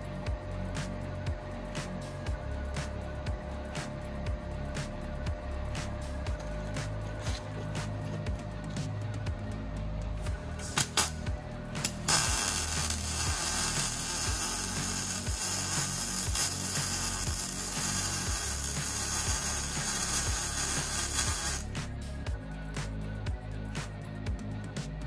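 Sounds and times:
background music: 0.0s - 25.0s
welding arc crackling and hissing: 10.4s - 22.0s.

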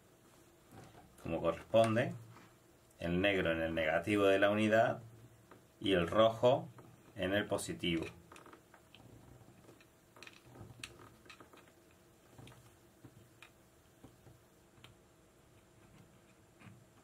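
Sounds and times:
faint clicks and taps: 7.9s - 17.0s.

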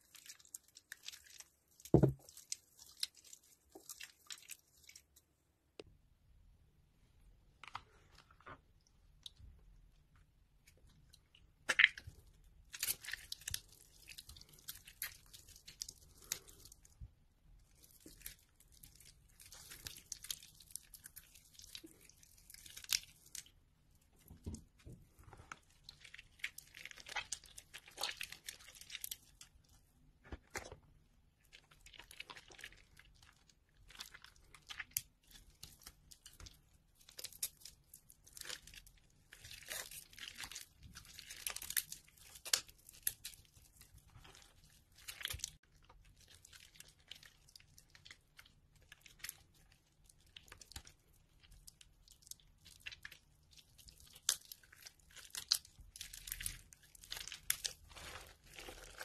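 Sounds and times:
wet soap crunching: 0.0s - 5.4s, 7.5s - 59.0s.

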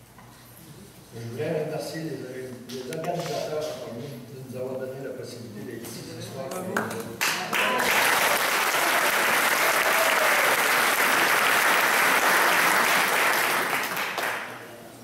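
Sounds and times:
audience applauding: 7.2s - 14.7s.

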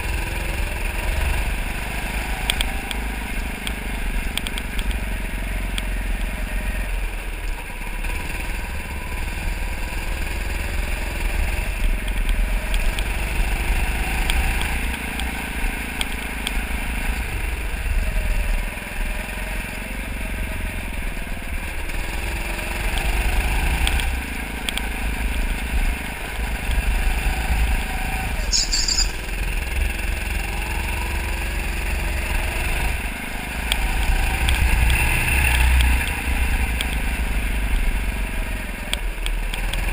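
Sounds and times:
go-kart engine: 0.0s - 39.9s
brief high squeak: 28.4s - 29.2s.

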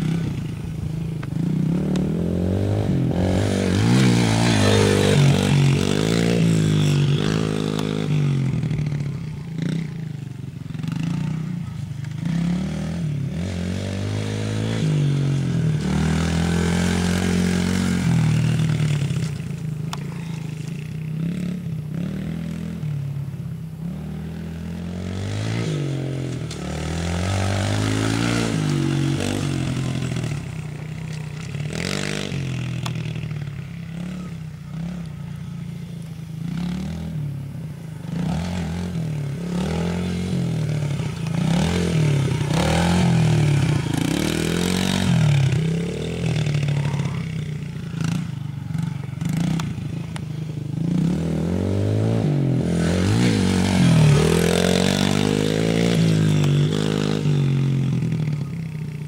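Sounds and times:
dirt bike engine revving: 1.2s - 10.0s, 10.7s - 19.4s, 23.9s - 58.5s.

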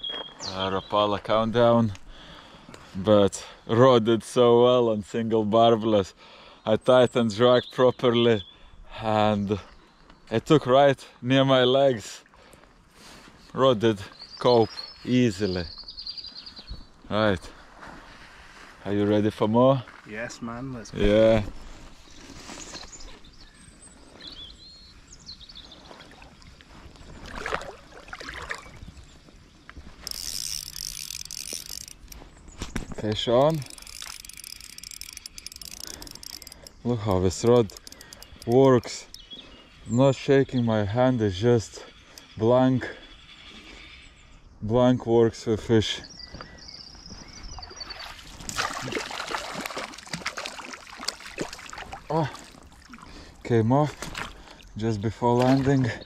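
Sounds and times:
water splashing: 25.8s - 29.0s, 47.6s - 56.0s
fishing reel whirring: 30.0s - 39.2s.

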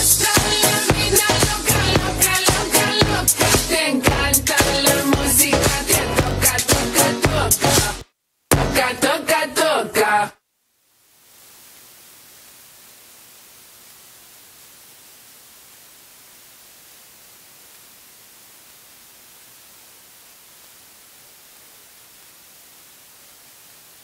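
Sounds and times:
steady background hiss: 10.4s - 24.0s.

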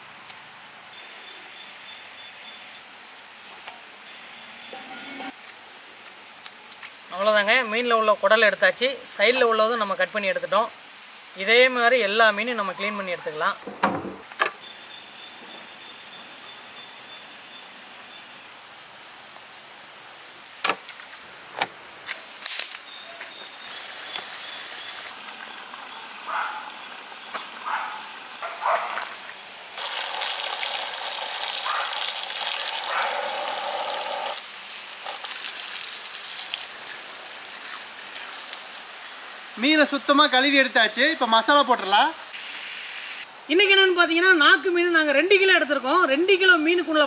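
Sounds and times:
water gushing from hose: 28.6s - 39.6s
water splashing on fish: 29.8s - 38.9s.

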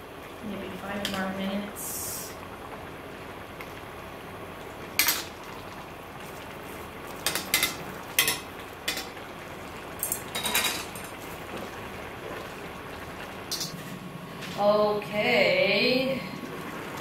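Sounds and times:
metal utensil clinking on pot: 10.0s - 11.1s, 13.5s - 13.8s.

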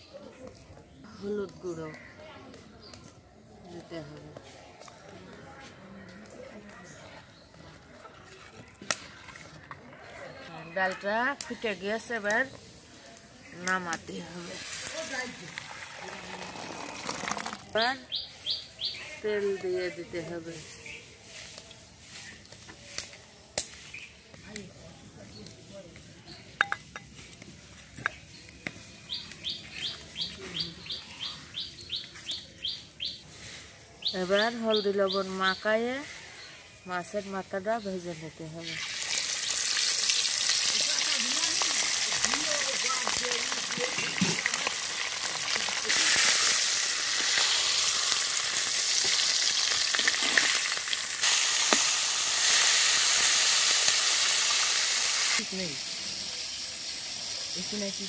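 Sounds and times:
fish sizzling in hot oil: 13.7s - 17.9s, 38.6s - 58.0s
bird chirping: 28.0s - 33.2s.

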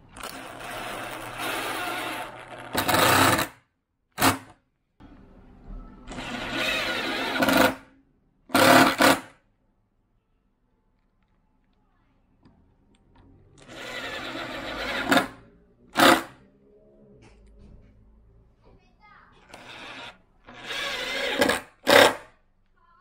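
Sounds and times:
cordless driver driving screws: 6.1s - 7.8s, 19.4s - 22.3s.

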